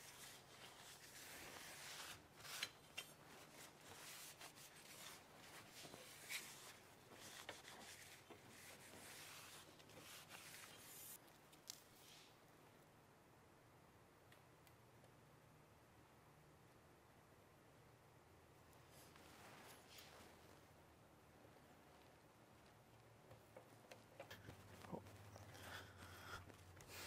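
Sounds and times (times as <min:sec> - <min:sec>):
cloth rag rubbing on metal rails: 0:00.0 - 0:11.2.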